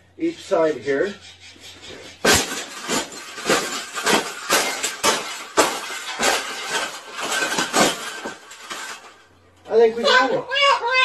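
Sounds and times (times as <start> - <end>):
wire rattling: 0.6 - 9.9
stomps crushing metal wire: 2.1 - 9.3.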